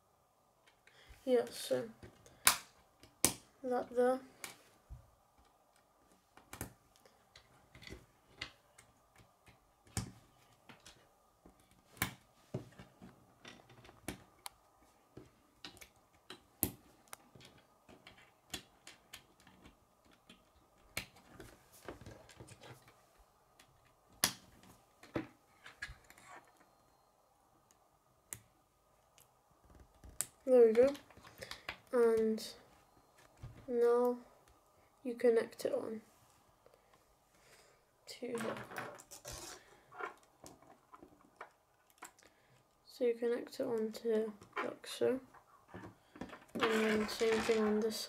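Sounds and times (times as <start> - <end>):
plastic pieces snapping together: 2.3 - 3.4.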